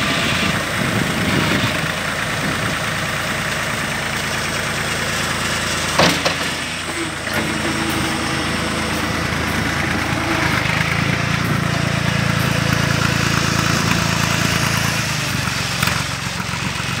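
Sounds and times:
tractor engine running: 0.0s - 17.0s
tyres rolling on gravel: 0.0s - 17.0s.

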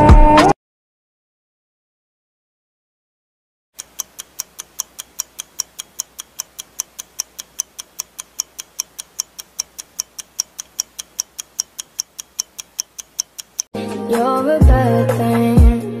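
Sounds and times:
fast clock-like ticking: 3.8s - 13.7s.

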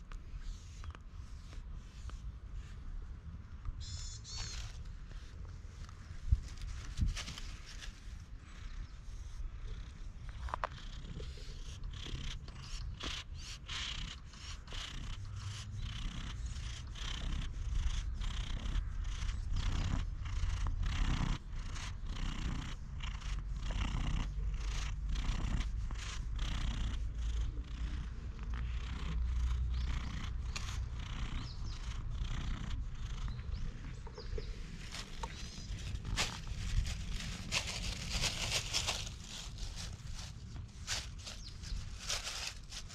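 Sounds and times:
hand rubbing against fur: 0.0s - 3.2s, 3.8s - 9.4s, 22.8s - 42.9s
cat purring: 4.2s - 42.9s.

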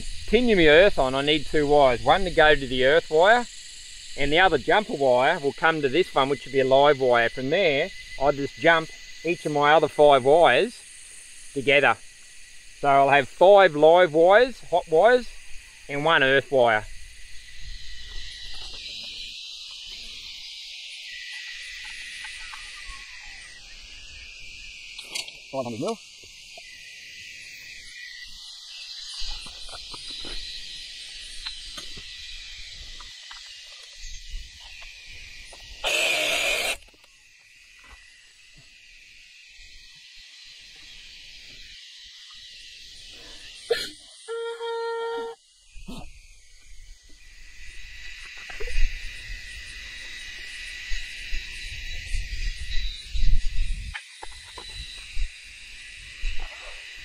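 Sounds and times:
insects chirring: 0.0s - 57.0s
cordless saw cutting plastic pipe: 35.8s - 36.9s.

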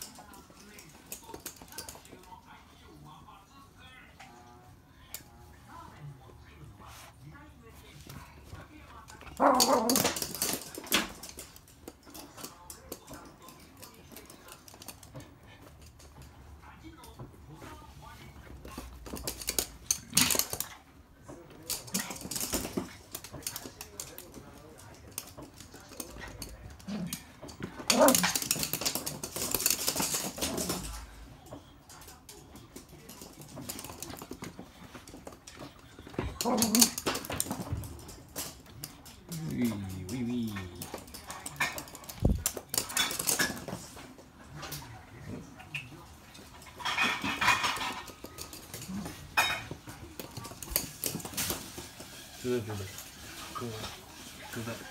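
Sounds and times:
dog claws clicking on wooden floor: 9.0s - 16.4s, 18.5s - 44.9s, 45.8s - 54.3s.

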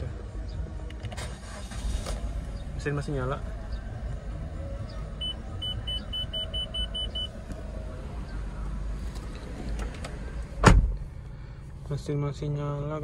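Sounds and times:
dashboard warning chime beeping: 5.2s - 7.4s.

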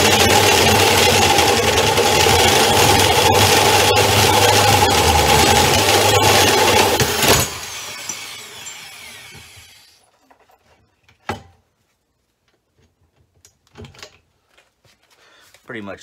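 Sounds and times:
drill whine spinning down: 0.0s - 10.1s.

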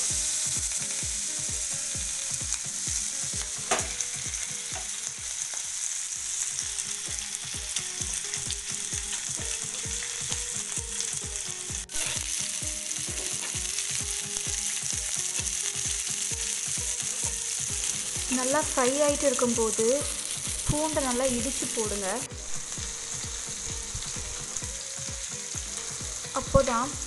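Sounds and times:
fish sizzling in hot oil: 0.0s - 27.0s
low regular beat: 6.6s - 27.0s.

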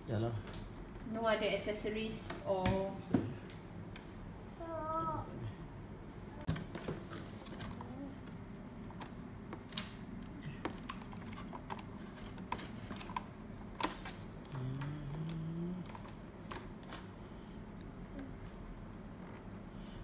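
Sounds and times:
low voice hum: 14.4s - 16.2s.

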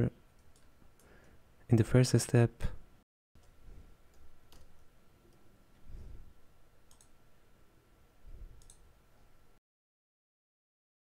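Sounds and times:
computer mouse clicks: 3.4s - 5.4s, 6.9s - 7.2s, 8.6s - 8.9s.

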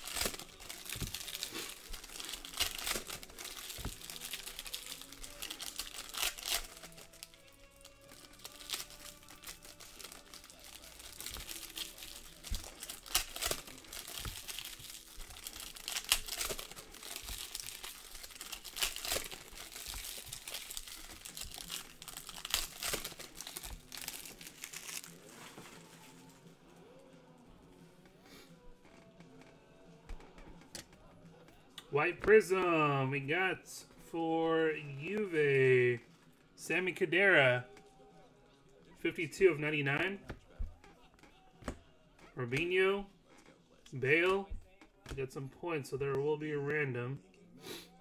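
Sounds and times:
foil wrappers crinkling and tearing: 0.0s - 26.4s
quiet background music: 0.0s - 48.0s.

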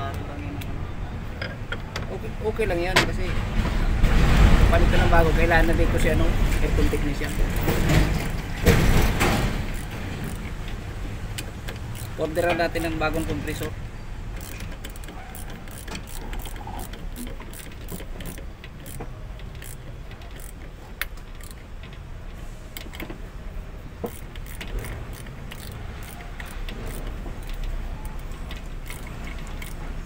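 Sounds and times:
hand ratchet clicking: 5.5s - 13.7s, 14.3s - 23.1s, 24.0s - 30.0s.

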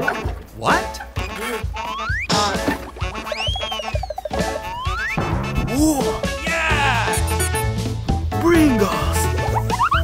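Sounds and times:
comic background music: 0.0s - 10.0s
cartoon sliding pitch glides: 3.2s - 5.2s.

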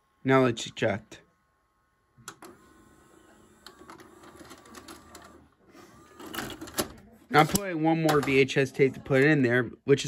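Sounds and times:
loading motor whirring: 1.5s - 7.7s.

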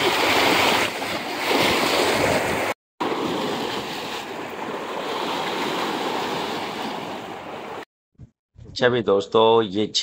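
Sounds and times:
sea surf washing against rocks: 0.0s - 7.8s.

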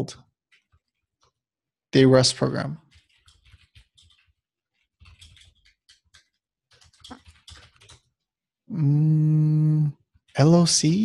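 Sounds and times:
computer keyboard typing: 0.2s - 1.4s, 2.0s - 8.4s, 10.0s - 11.0s.

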